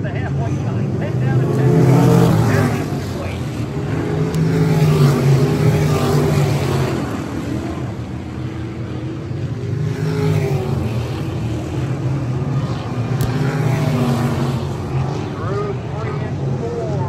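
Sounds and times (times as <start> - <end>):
race car engines: 0.0 - 17.0.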